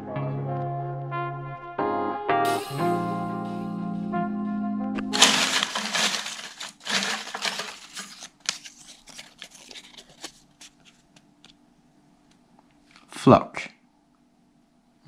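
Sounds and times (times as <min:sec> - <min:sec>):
paper slips rustling: 0:05.1 - 0:11.0.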